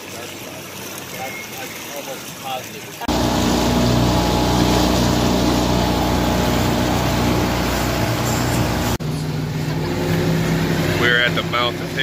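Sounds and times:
water rushing along hull: 0.0s - 12.0s
motorboat engine hum: 3.1s - 12.0s.

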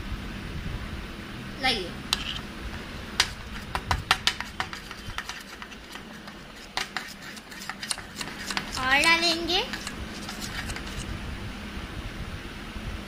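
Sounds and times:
spoon stirring slime in steel cup: 2.1s - 11.1s.

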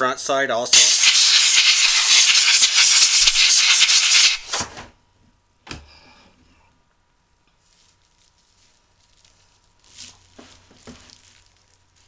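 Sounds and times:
compressed air hissing: 0.7s - 4.6s.

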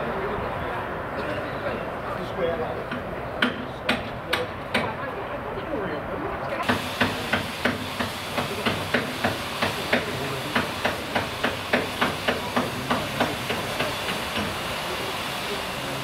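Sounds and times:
hammer striking steel: 2.9s - 5.0s, 6.6s - 14.6s
steady hiss: 6.6s - 16.0s.

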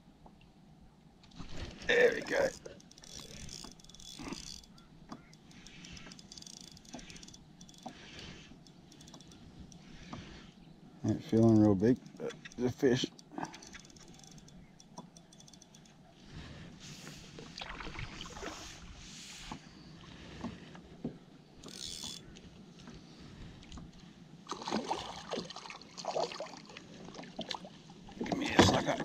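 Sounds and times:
small waves lapping against kayak: 15.8s - 29.0s.

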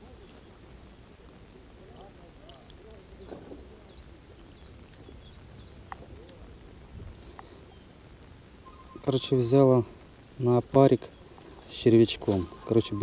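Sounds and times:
fainter lower bird calls: 1.6s - 8.0s, 8.6s - 9.6s, 10.8s - 13.0s
short high bird chirps: 8.6s - 9.3s, 12.3s - 13.0s.

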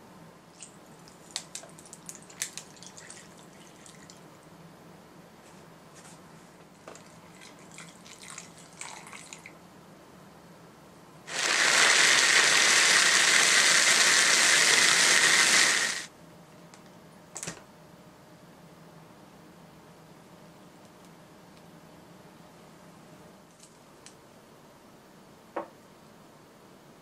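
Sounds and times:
food chopper motor whirring: 11.3s - 16.1s.

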